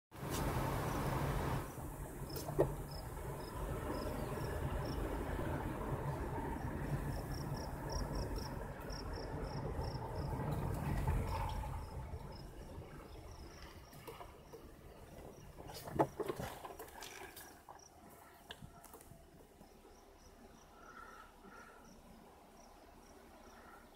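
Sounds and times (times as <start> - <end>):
vehicle road and engine rumble: 0.1 - 23.9
insects chirping: 0.7 - 5.2, 6.0 - 23.9.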